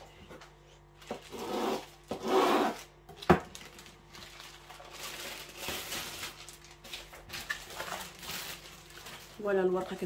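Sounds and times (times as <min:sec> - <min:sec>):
plastic packet crinkling: 0:02.8 - 0:10.0.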